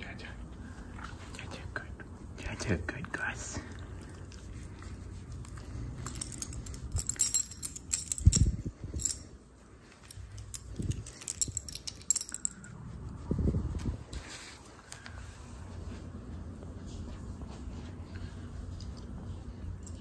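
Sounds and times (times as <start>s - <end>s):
dog tag jingling: 6.0s - 9.3s.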